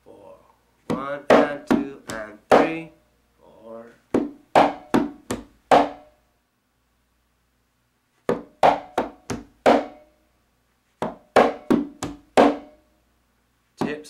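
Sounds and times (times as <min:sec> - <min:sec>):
conga drum strokes: 0:04.1 - 0:06.1, 0:08.3 - 0:10.0, 0:11.0 - 0:12.8.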